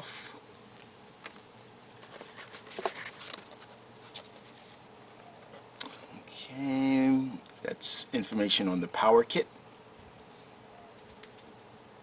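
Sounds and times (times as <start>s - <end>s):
high-pitched insect chorus: 0.0s - 12.0s
plastic and paper crinkling: 2.0s - 4.8s.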